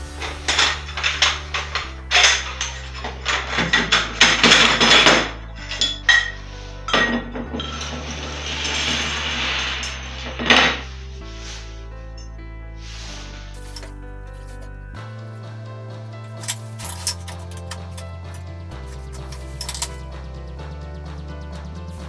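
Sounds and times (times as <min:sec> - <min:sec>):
quiet background music: 0:00.0 - 0:22.0
metal bars clanking together: 0:00.1 - 0:10.9, 0:16.4 - 0:18.4, 0:19.1 - 0:20.1.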